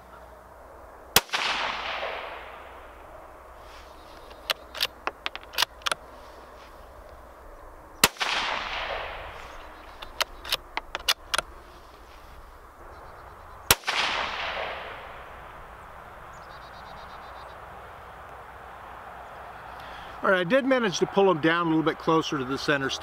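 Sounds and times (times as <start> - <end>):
rifle shots with echo: 1.2 - 3.3, 8.0 - 11.4, 13.7 - 15.8
rifle bolt metallic clicks: 4.2 - 6.0, 8.0 - 11.5.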